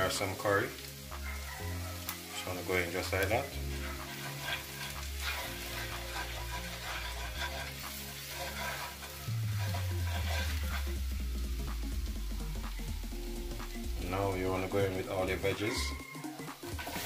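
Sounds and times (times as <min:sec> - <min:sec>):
background music: 0:00.0 - 0:17.0
butter sizzling in a frying pan: 0:00.0 - 0:17.0
wooden spoon scraping a pan: 0:01.4 - 0:11.4, 0:16.6 - 0:17.0.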